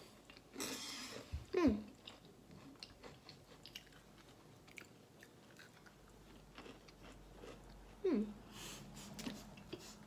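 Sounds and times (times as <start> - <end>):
chewing and crunching: 1.9 - 8.1
person humming mmm: 8.0 - 8.4.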